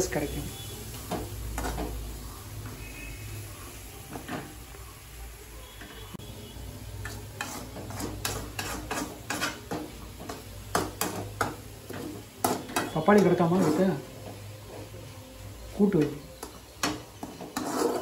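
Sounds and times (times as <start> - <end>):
metal ladle scraping a pan: 7.0 - 15.0, 16.4 - 18.0.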